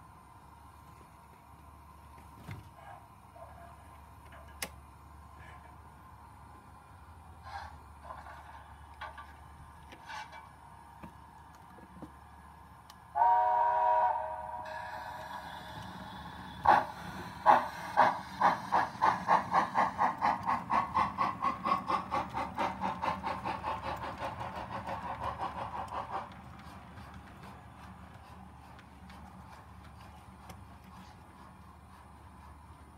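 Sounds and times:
steam locomotive exhaust chuffs: 0:03.8 - 0:32.9
steam locomotive whistle: 0:13.1 - 0:15.2.

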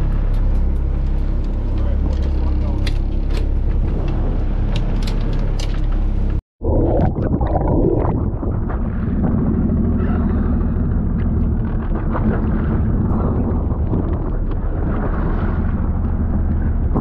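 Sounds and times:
boat engine rumbling: 0:00.0 - 0:17.0
wind buffeting microphone: 0:07.1 - 0:17.0.

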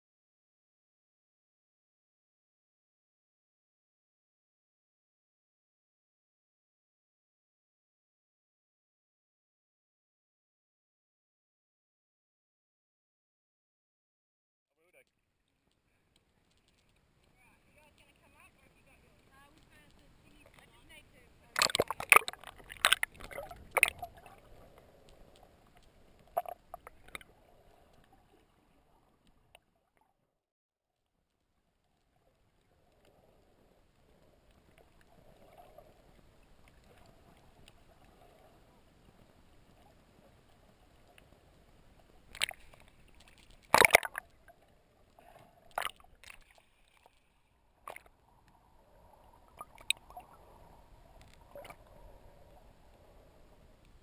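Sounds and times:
muffled underwater sloshing: 0:15.6 - 0:29.5, 0:31.7 - 0:54.0.

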